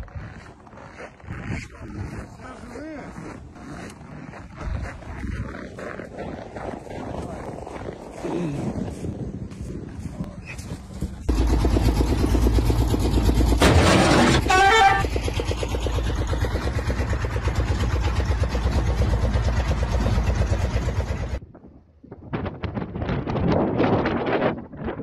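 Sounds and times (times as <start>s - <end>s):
engine chugging: 11.0s - 21.4s
horn blast: 13.6s - 15.1s
short loud burst: 13.6s - 15.1s.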